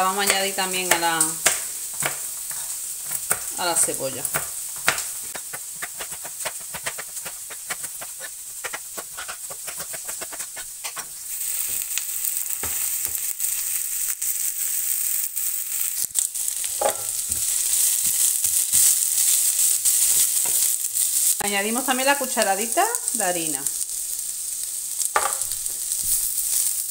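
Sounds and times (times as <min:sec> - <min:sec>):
spoon stirring in frying pan: 0:00.0 - 0:21.4
onions sizzling in hot oil: 0:00.0 - 0:26.9
knife chopping on plastic board: 0:04.3 - 0:11.0.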